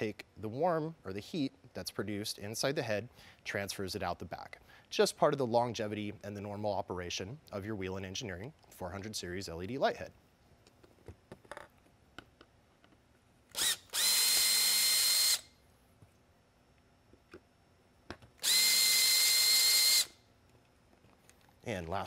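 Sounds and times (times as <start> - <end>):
cordless drill whining: 13.5 - 15.5, 18.4 - 20.2.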